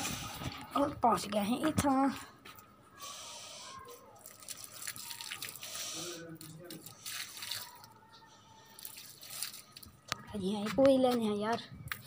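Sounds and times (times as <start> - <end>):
water splashing and dripping: 4.2 - 8.0, 8.7 - 10.2.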